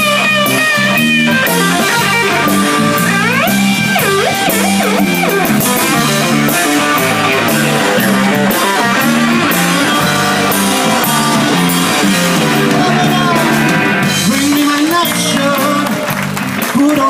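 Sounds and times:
bass guitar: 0.0s - 17.0s
drum kit: 0.0s - 17.0s
electric guitar: 0.0s - 17.0s.

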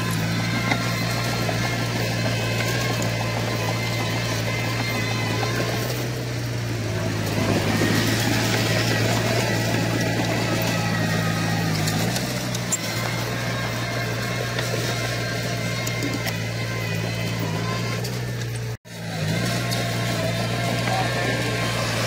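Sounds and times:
bulldozer diesel engine running: 0.0s - 22.0s.

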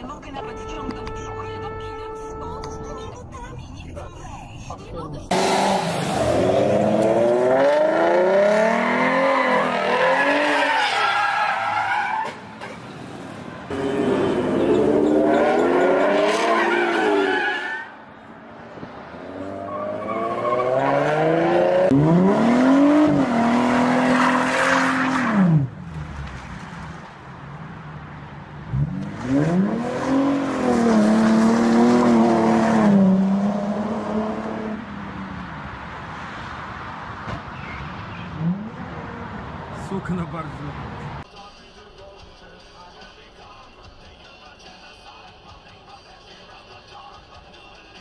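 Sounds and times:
car engine revving: 5.3s - 10.8s, 13.1s - 17.5s, 19.0s - 41.2s
tyres squealing: 8.7s - 12.8s, 13.7s - 17.9s.

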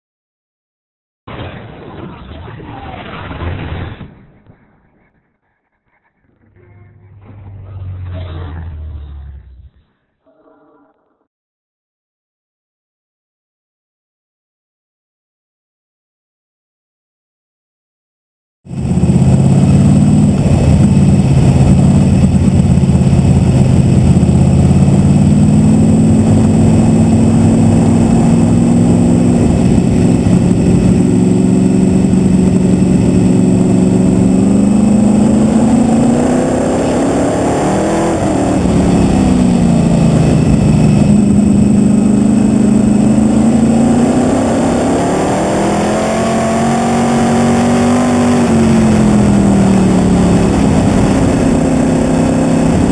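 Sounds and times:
race car engine: 4.4s - 9.9s, 18.7s - 52.9s.

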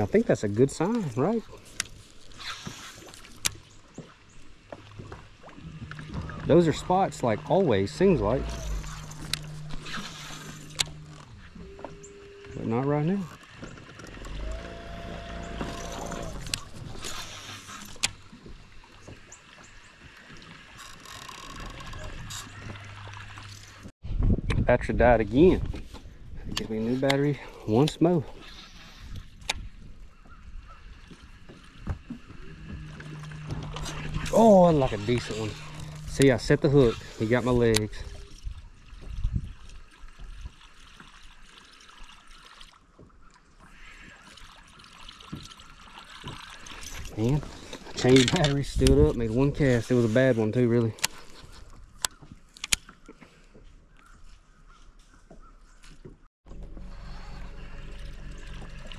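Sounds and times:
water lapping: 0.0s - 23.9s, 25.4s - 55.8s, 56.5s - 58.9s
low steady hum: 5.6s - 13.0s, 32.2s - 38.2s, 56.5s - 58.9s
fishing reel winding: 6.7s - 11.3s, 14.2s - 18.1s, 20.8s - 22.5s, 32.9s - 37.9s
low thumps: 31.8s - 37.1s.

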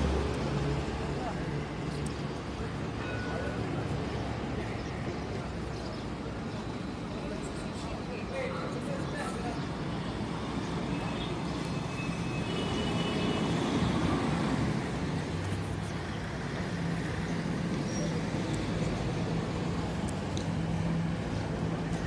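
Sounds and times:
vehicle engines running: 13.6s - 22.0s.

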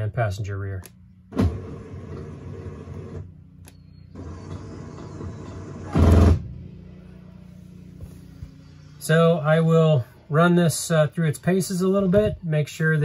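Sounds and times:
electric jack motor humming: 1.3s - 6.7s.

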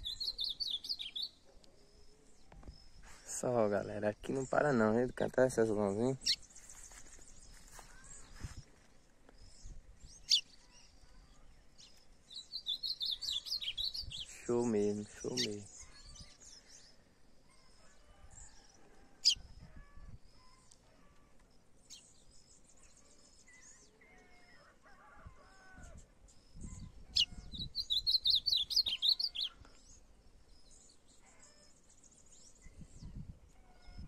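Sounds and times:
songbirds chirping: 0.0s - 34.0s
fast bird twittering: 12.4s - 14.3s, 26.6s - 29.5s.

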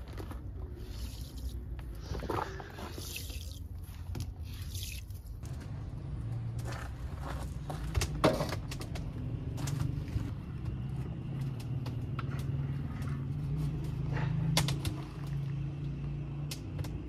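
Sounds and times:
steady low rumble: 5.2s - 17.0s.

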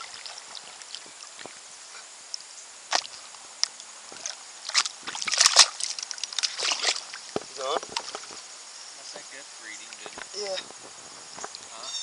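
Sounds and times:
paddle splashing water: 0.0s - 2.0s, 2.8s - 8.5s, 9.8s - 11.6s
stick splashing water: 2.9s - 8.3s.

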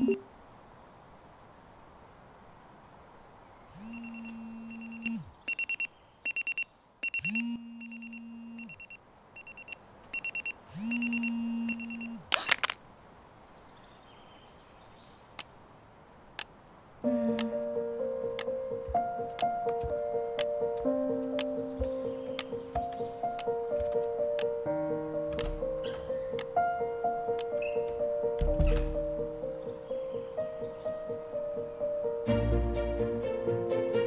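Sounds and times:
phone alarm beeps: 0.0s - 0.2s, 3.9s - 12.2s
phone vibrating buzz: 3.8s - 5.6s, 7.0s - 8.9s, 9.5s - 12.2s
music: 17.0s - 34.0s.

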